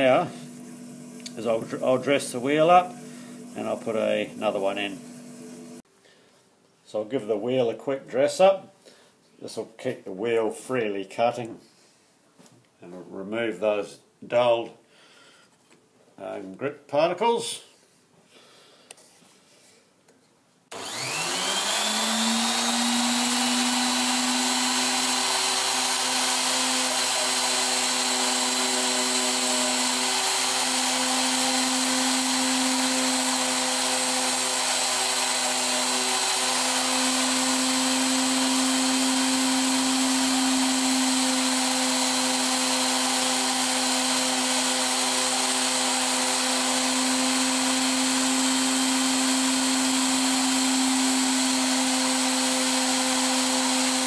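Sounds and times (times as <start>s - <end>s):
grinder motor whine: 0.0s - 5.8s, 20.7s - 54.0s.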